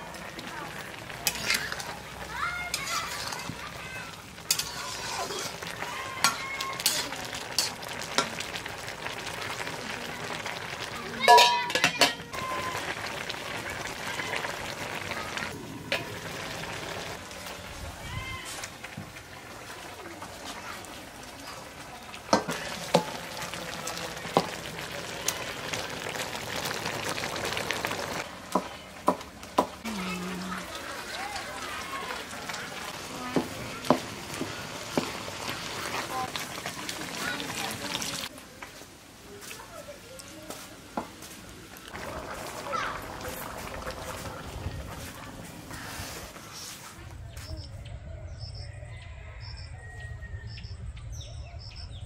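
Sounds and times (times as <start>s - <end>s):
sizzling in a pan: 0.0s - 47.5s
metal spatula scraping pan: 1.2s - 2.0s, 2.7s - 3.6s, 4.4s - 7.8s.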